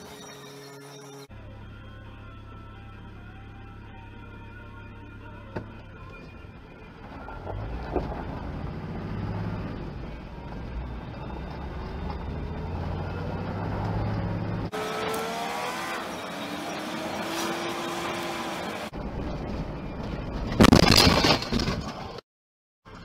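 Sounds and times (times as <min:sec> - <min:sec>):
gravel striking vehicle: 0:05.4 - 0:14.8, 0:18.9 - 0:22.2
vehicle engine speeding up: 0:07.0 - 0:19.0.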